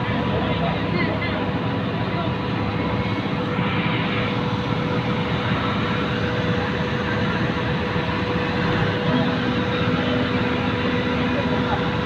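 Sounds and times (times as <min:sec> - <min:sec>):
crane machinery droning: 0:00.0 - 0:12.0.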